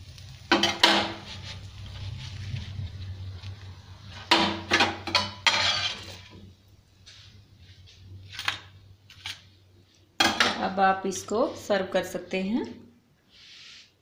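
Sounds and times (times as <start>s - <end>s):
utensils knocking on iron pan: 0.5s - 1.2s, 4.3s - 6.0s
utensil scraping iron pan: 4.3s - 6.4s.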